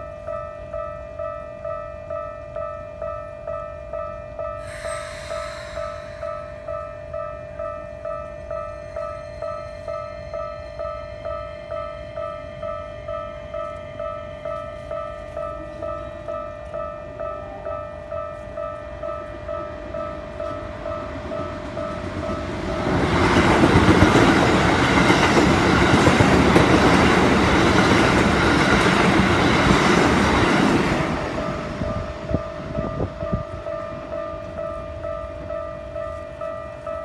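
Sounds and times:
level-crossing bell ringing: 0.0s - 27.5s
electric train passing: 0.0s - 37.0s.

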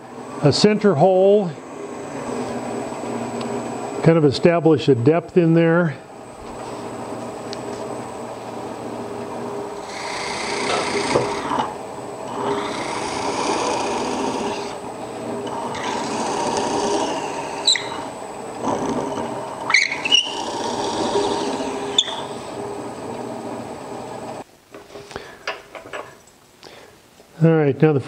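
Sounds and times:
wood lathe spinning: 0.0s - 4.1s, 6.6s - 24.4s
drill bit boring into wood: 9.8s - 14.8s, 15.4s - 22.4s
drill bit squeals and clicks: 9.9s - 11.6s, 15.5s - 18.1s, 19.0s - 22.4s.

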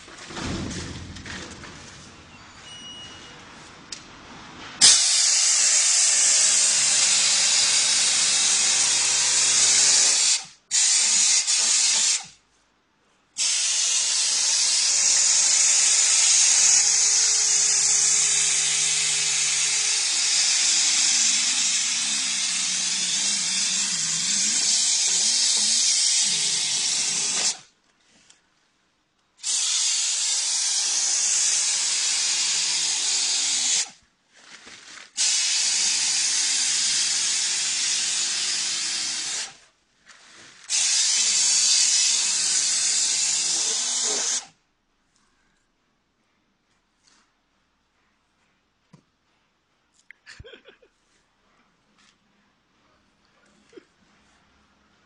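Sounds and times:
stripping tool loud hiss: 4.8s - 12.4s, 13.4s - 27.7s, 29.4s - 34.0s, 35.1s - 39.6s, 40.7s - 44.5s.

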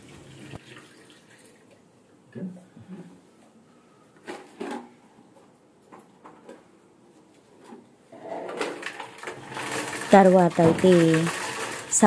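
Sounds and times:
water pouring: 0.0s - 1.8s.

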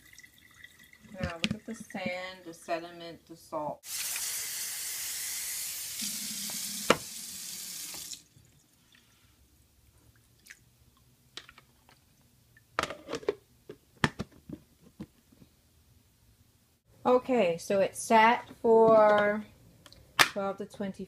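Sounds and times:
tap water running into container: 0.0s - 2.2s, 5.7s - 8.3s.

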